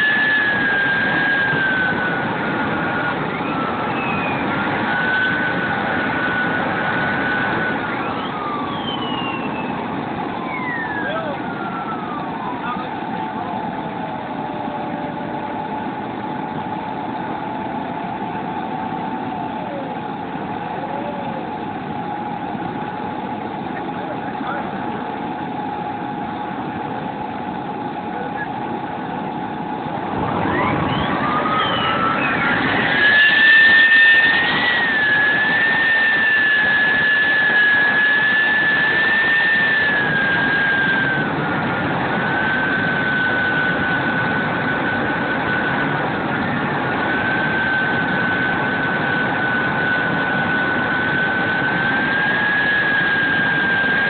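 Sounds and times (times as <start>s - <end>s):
jet turbine engine idling: 0.0s - 54.0s.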